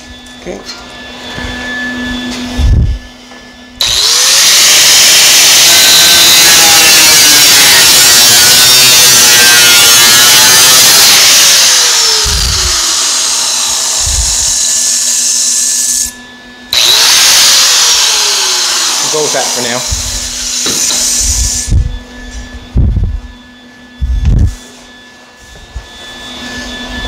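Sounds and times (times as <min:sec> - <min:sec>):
angle grinder grinding metal: 0:03.8 - 0:22.7.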